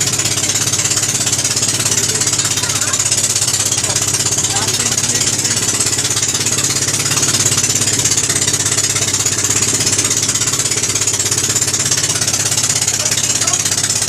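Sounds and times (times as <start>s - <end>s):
boat engine running: 0.0s - 14.0s.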